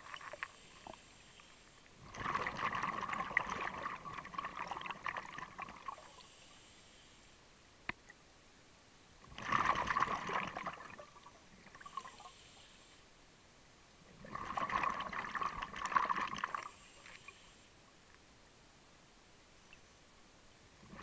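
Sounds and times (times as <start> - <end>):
exhaled bubbles gurgling: 2.0 - 6.2, 9.3 - 12.3, 14.1 - 16.8, 20.8 - 21.0.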